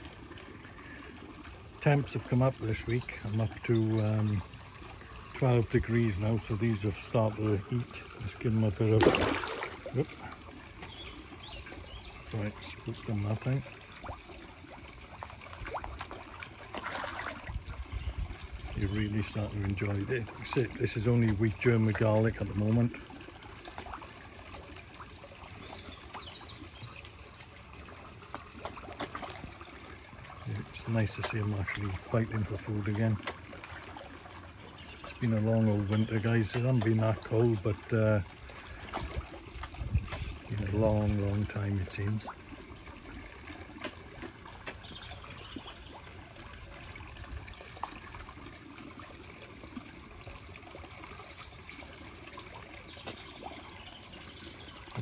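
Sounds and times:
water trickling and splashing: 0.0 - 55.0
fish popping and splashing: 6.7 - 12.2, 13.6 - 18.4, 27.8 - 34.6, 35.8 - 40.5, 41.8 - 51.2
fish splashing at surface: 7.0 - 11.8, 12.7 - 18.0.

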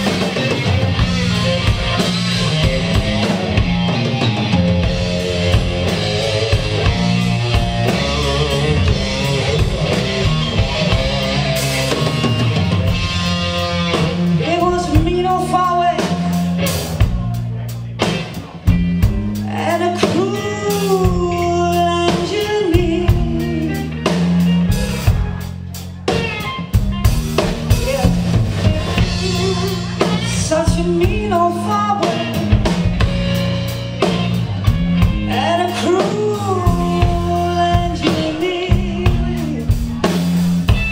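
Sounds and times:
bass guitar: 0.0 - 40.9
drum kit: 0.0 - 40.9
electric guitar: 0.0 - 40.9
woman singing: 14.4 - 16.4, 19.4 - 23.9, 28.8 - 32.6, 35.2 - 40.1.

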